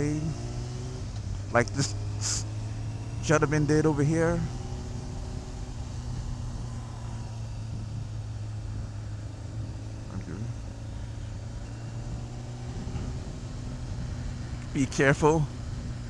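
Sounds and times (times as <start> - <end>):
motorcycle engine running: 0.0 - 16.0
rush of wind noise: 4.2 - 16.0.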